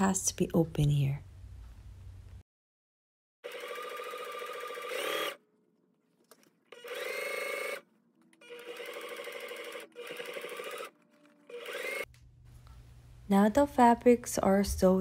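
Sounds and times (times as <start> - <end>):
sewing machine motor whine: 3.4 - 5.4, 6.7 - 12.1.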